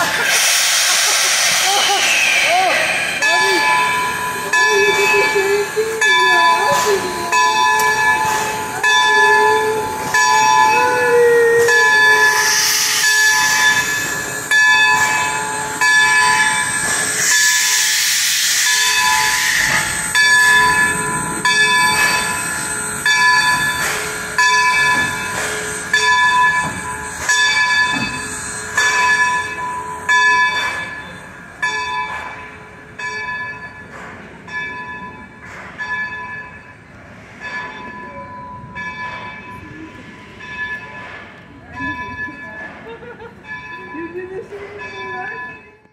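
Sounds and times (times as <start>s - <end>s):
steam hissing: 0.0s - 31.5s
locomotive bell ringing: 2.7s - 45.9s.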